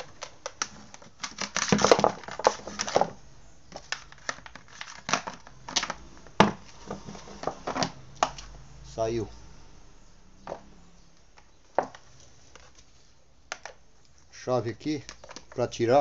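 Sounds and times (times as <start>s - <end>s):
plastic fan parts clicking and rattling: 0.0s - 8.5s, 11.2s - 14.2s, 14.8s - 16.0s.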